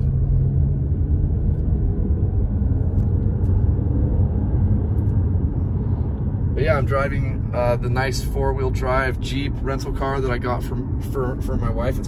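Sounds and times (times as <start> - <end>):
engine and tyre rumble in car: 0.0 - 12.0.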